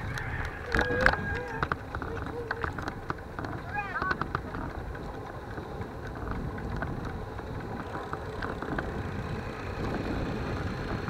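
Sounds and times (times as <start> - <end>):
wind buffeting microphone: 0.0 - 11.0.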